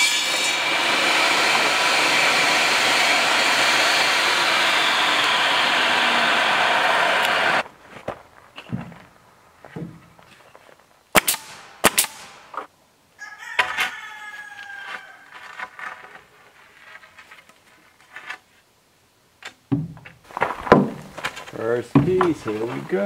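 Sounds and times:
rooster crowing: 0:13.2 - 0:15.6
sharp knocks: 0:19.7 - 0:22.4.

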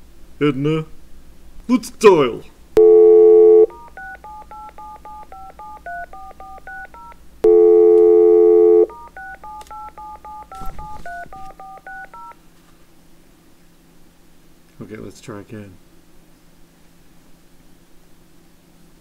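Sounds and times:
telephone dial tone: 0:02.8 - 0:12.4
touch-tone keypad beeps: 0:02.8 - 0:12.4.

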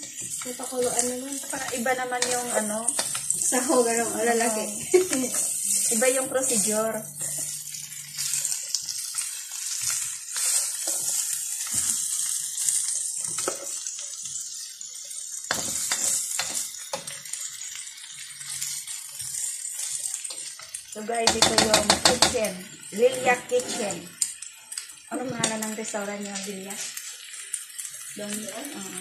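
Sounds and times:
spatula scraping a pan: 0:00.0 - 0:13.8, 0:15.5 - 0:17.4, 0:18.5 - 0:24.1
food sizzling in a wok: 0:00.0 - 0:29.0.

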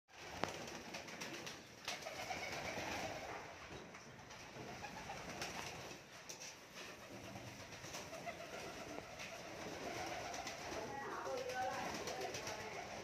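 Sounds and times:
pigeons cooing: 0:06.8 - 0:13.0.

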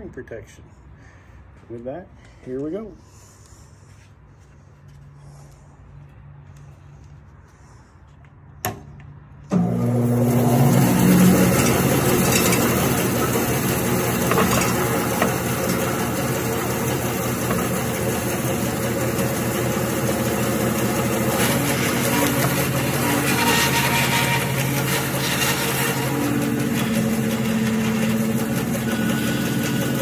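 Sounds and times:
bandsaw cutting log: 0:09.5 - 0:30.0.

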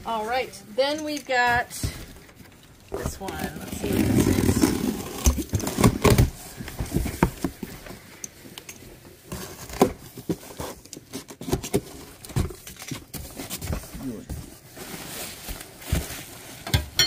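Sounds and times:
cardboard box being opened: 0:03.0 - 0:08.0.

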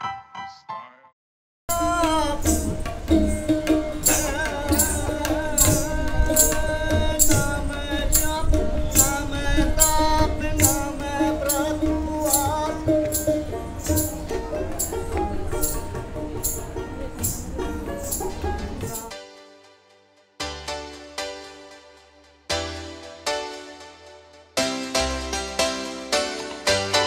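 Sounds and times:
tabla strokes: 0:01.7 - 0:19.1
stringed instrument melody: 0:01.7 - 0:27.0.

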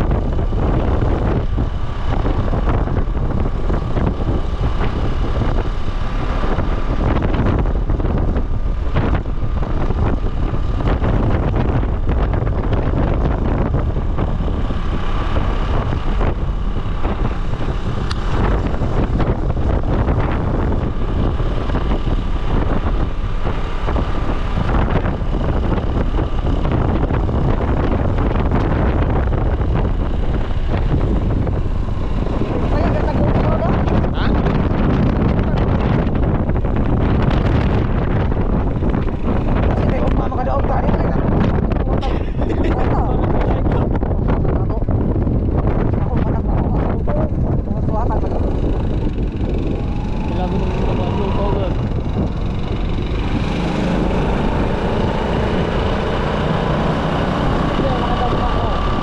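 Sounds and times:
scooter engine running: 0:00.0 - 0:59.0
wind rushing over microphone: 0:00.0 - 0:59.0.

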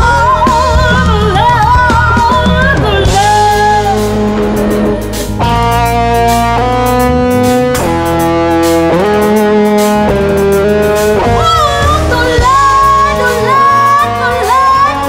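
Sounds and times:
instrumental music with held notes: 0:00.0 - 0:15.0
steady beat: 0:02.5 - 0:14.3.

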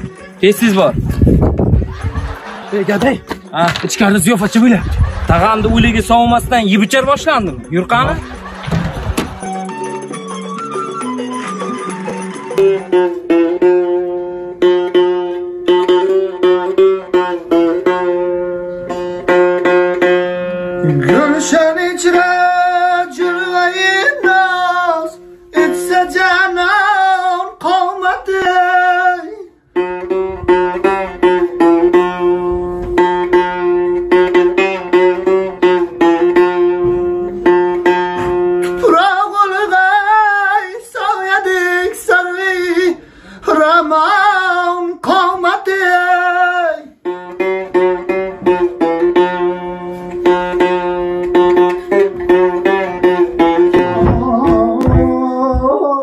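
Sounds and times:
strummed long-necked lute: 0:08.1 - 0:56.0
man singing with vibrato: 0:20.8 - 0:30.1, 0:38.7 - 0:48.1, 0:50.6 - 0:56.0.

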